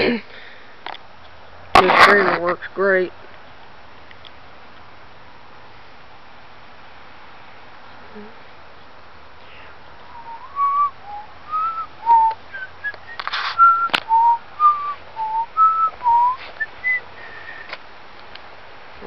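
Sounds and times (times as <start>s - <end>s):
person whistling a tune: 10.1s - 17.0s.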